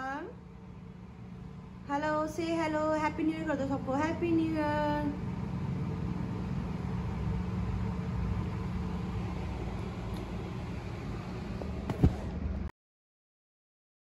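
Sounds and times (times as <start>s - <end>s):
low machine hum and rumble: 0.0s - 12.7s.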